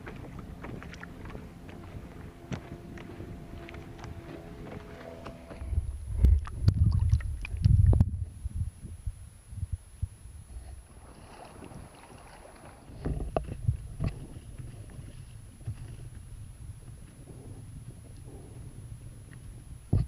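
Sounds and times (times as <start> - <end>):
waves slapping against kayak: 0.0 - 5.6, 10.8 - 16.2.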